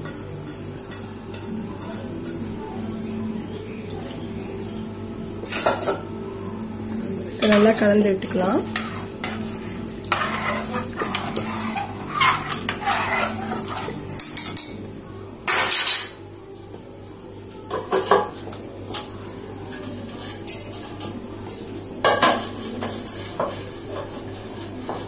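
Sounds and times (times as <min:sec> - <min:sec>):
ladle clattering: 0:07.4 - 0:14.7.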